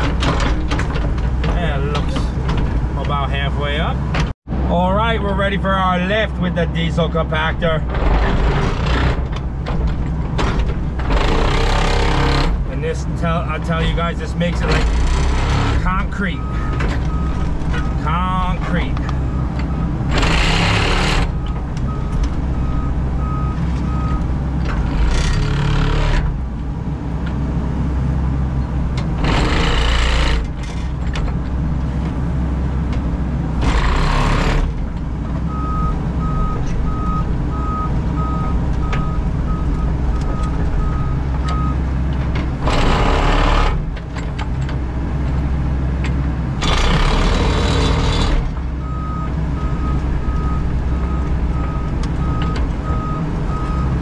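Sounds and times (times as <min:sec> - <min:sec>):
diesel engine running: 0:00.0 - 0:54.0
reversing alarm beeping: 0:16.3 - 0:18.5, 0:19.2 - 0:24.3, 0:35.5 - 0:41.8, 0:48.8 - 0:54.0.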